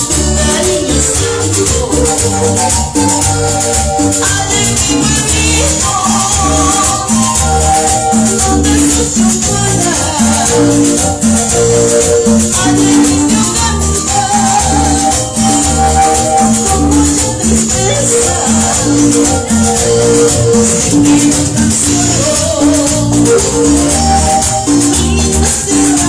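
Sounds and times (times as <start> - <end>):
loud live music: 0.0 - 26.0
repeating bass line: 0.0 - 26.0
shaker: 0.0 - 26.0.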